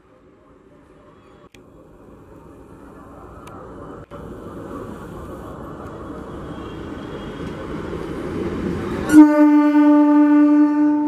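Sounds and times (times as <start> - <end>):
train rumble: 0.6 - 11.0
train horn blast: 9.1 - 11.0.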